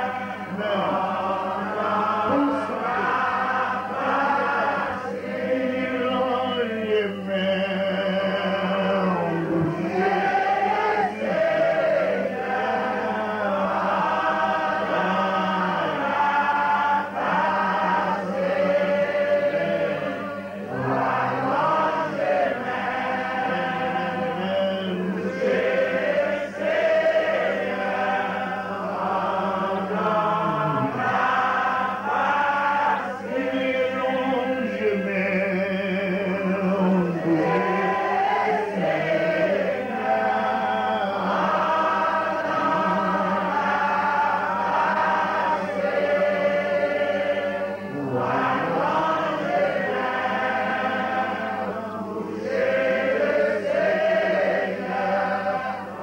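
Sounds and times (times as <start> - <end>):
man singing into microphone: 0.0 - 3.1, 5.6 - 10.1, 23.4 - 25.3, 33.3 - 37.9, 47.9 - 49.2
group of voices singing: 0.0 - 56.0.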